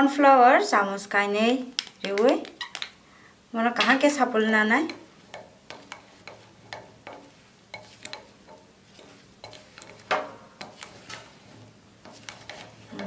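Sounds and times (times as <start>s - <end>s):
spatula scraping a glass bowl: 8.9s - 13.0s.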